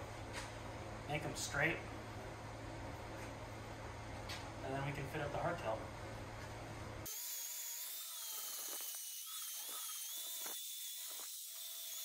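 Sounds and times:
angle grinder grinding steel: 7.1s - 12.0s.

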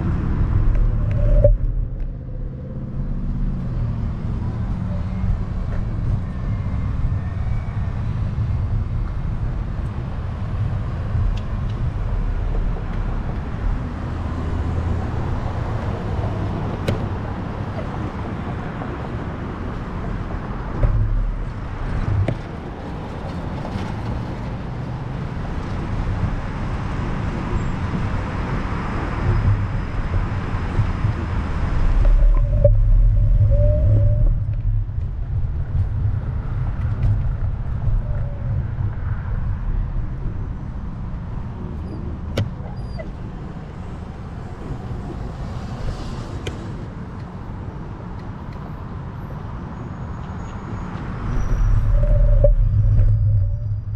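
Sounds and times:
car traffic passing: 0.0s - 53.9s.

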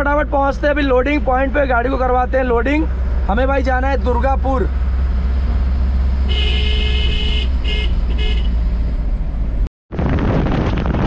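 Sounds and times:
engine drone: 0.0s - 9.7s
wind and road noise: 0.0s - 11.0s
truck horn: 6.2s - 8.7s.

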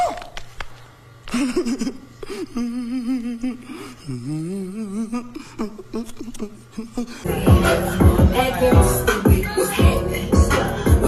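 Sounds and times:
man humming a wavering note: 2.5s - 9.1s.

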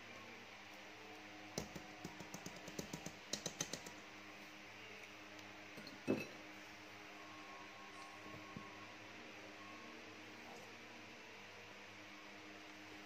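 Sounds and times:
faint steady hum: 0.0s - 13.0s
whisk clicking against metal bowl: 1.6s - 3.9s.

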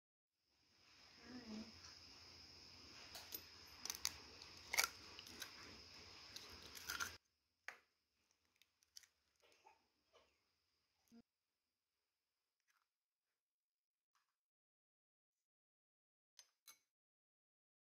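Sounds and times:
steady hiss: 0.6s - 6.9s
eggshells cracking: 3.7s - 7.2s.

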